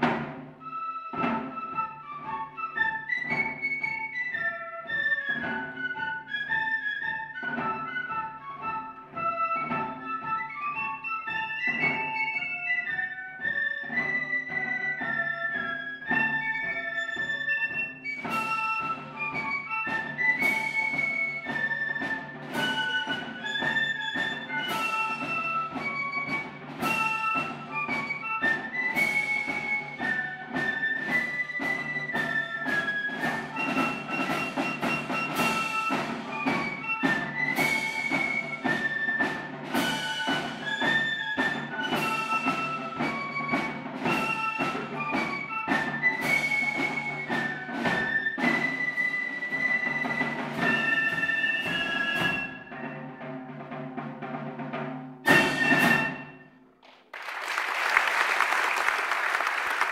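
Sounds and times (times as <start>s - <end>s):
flute band playing a march: 0.0s - 56.6s
audience applause: 56.8s - 59.9s.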